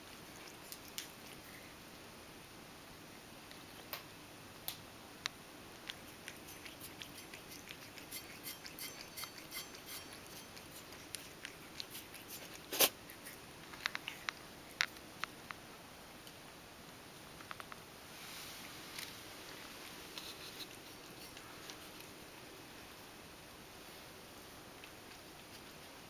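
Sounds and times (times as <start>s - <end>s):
cat lapping milk: 0.0s - 1.8s, 5.8s - 14.9s, 24.7s - 26.0s.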